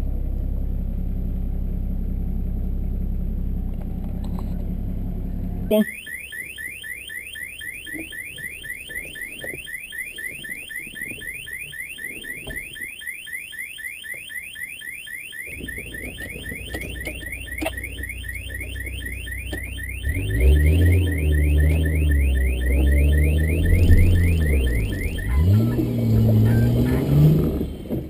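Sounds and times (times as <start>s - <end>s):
car alarm chirping: 5.7s - 27.9s.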